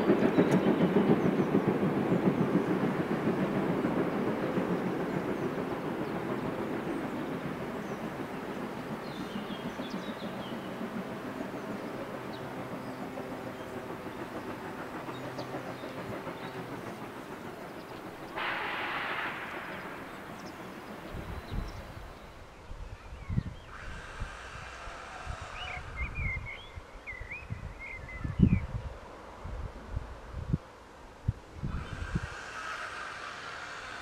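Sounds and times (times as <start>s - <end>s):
distant steam train rumble: 0.0s - 28.2s, 28.9s - 34.0s
steam hiss: 14.2s - 22.3s, 23.7s - 25.7s, 31.7s - 34.0s.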